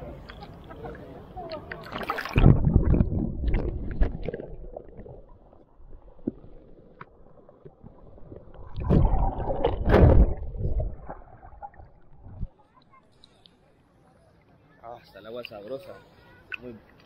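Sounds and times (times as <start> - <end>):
sea water sloshing and splashing: 0.3 - 12.5
low rumbling on microphone: 2.4 - 7.2, 7.8 - 12.5.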